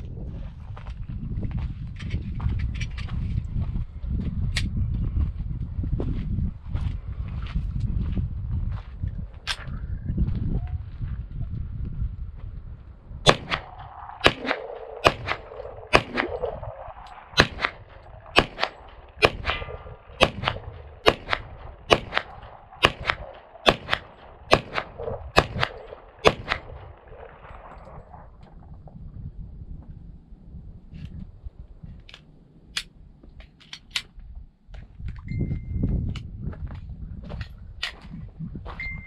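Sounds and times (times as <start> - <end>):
pistol shots: 13.3 - 28.0
gunshot echo: 13.3 - 28.2.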